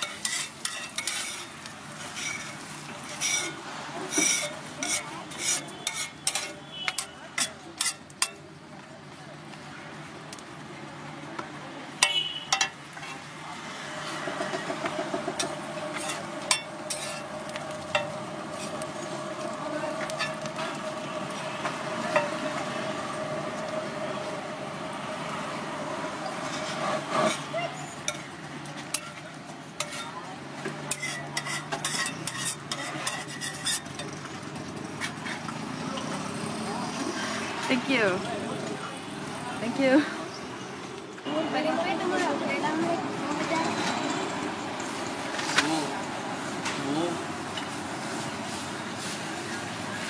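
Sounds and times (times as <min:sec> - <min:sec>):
metal spatula clinking on griddle: 0:00.0 - 0:08.4, 0:12.0 - 0:12.8, 0:15.4 - 0:17.2, 0:28.1 - 0:29.2, 0:29.8 - 0:30.2, 0:30.8 - 0:34.2
spatula scraping and chopping: 0:00.0 - 0:08.4, 0:14.4 - 0:18.8, 0:28.1 - 0:34.3.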